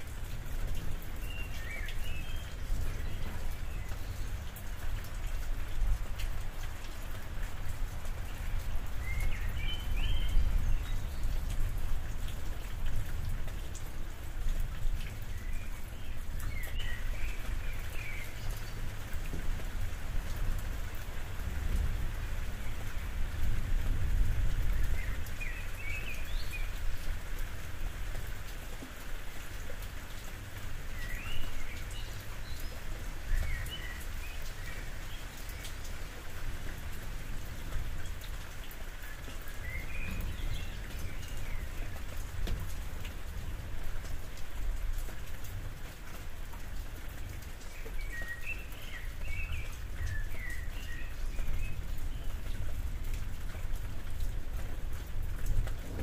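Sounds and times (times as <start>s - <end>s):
rain on a roof: 0.0s - 56.0s.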